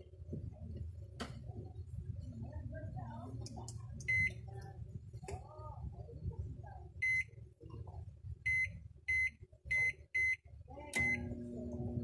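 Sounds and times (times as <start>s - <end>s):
microwave electrical hum: 0.0s - 12.0s
microwave keypad beeping: 4.0s - 4.4s, 7.0s - 7.3s, 8.5s - 10.4s, 11.0s - 11.4s.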